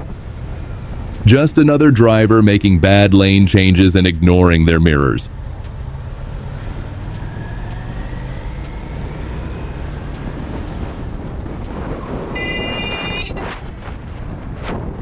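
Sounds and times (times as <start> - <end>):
motorcycle engine running: 5.3 - 11.4
vehicle horn: 12.3 - 13.5.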